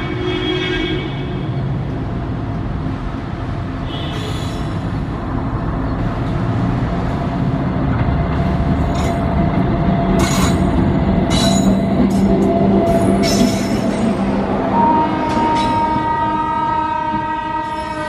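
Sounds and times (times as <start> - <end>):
train wheels rumbling on rails: 1.4 - 18.0
high-pitched wheel squeals: 14.7 - 16.7.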